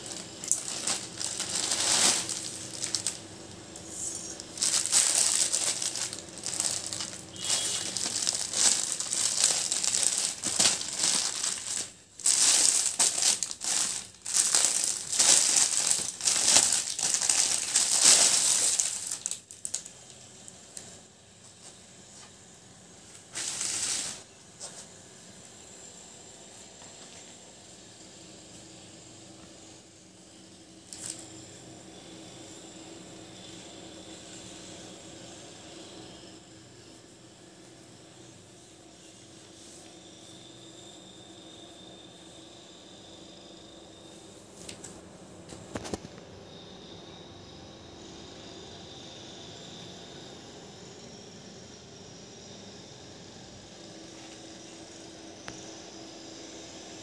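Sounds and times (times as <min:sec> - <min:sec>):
plastic packaging crinkling: 0:00.0 - 0:20.9, 0:30.9 - 0:31.2.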